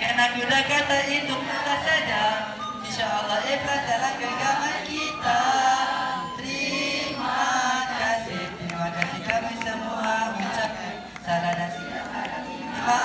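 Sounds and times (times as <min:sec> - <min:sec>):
group chanting in unison: 0:03.5 - 0:11.2.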